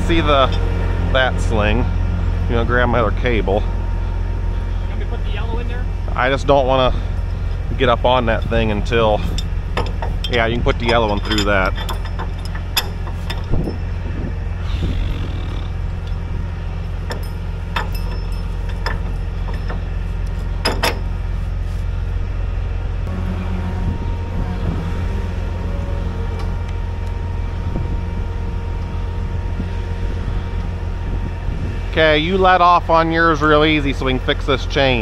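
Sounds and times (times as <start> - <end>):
diesel engine running: 0.0 - 35.0
faint steady whine: 0.0 - 35.0
metal clanks from rigging: 7.1 - 13.8, 16.9 - 21.2.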